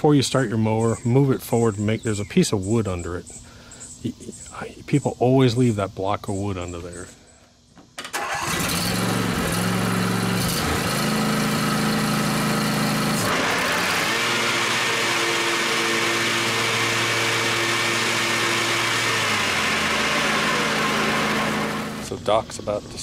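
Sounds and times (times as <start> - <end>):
lawn mower engine running: 8.0 - 22.5
mower blades rushing: 8.1 - 22.2.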